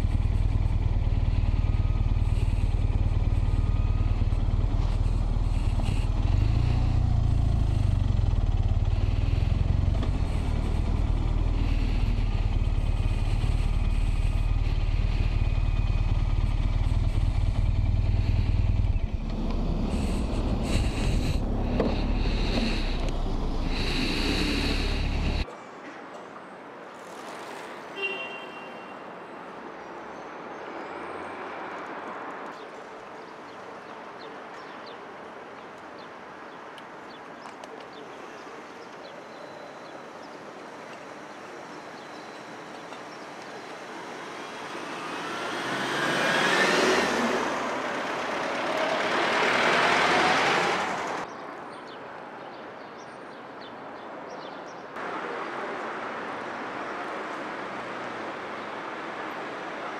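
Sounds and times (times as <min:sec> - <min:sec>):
vehicle passing by: 0:00.0 - 0:25.4, 0:43.6 - 0:51.3
light city traffic: 0:00.0 - 0:59.9.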